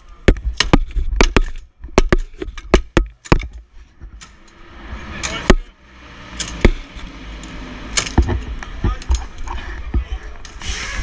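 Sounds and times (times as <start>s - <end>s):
dull thuds: 0.0s - 4.3s, 6.5s - 7.0s, 7.9s - 10.2s
tools knocking and clattering: 0.3s - 4.6s, 6.3s - 10.1s.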